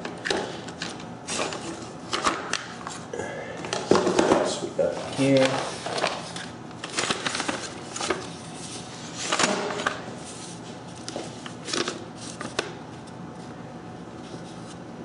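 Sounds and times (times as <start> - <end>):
paper rustling and crinkling: 4.8 - 13.6, 14.2 - 14.8
sharp paper crackles: 5.1 - 10.4.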